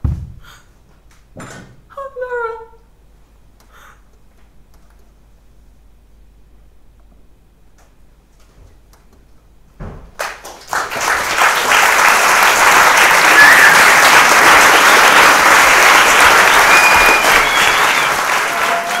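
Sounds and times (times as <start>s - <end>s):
audience applauding: 10.2s - 19.0s
crowd calls: 11.9s - 19.0s.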